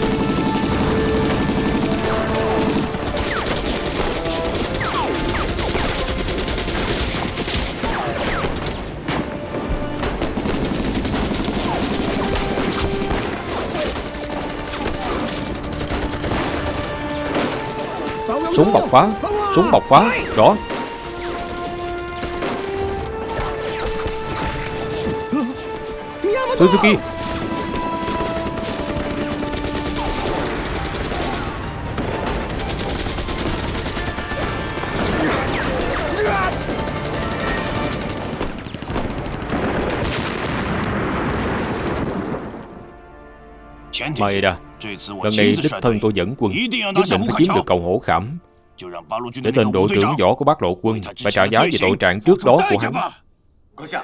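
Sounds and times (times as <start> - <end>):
rifle and machine gun fire: 0.0 - 8.8, 9.8 - 17.8, 27.0 - 42.5
background music: 0.0 - 40.2, 42.1 - 53.0
voices shouting: 17.8 - 20.6, 26.2 - 27.1, 33.3 - 37.6.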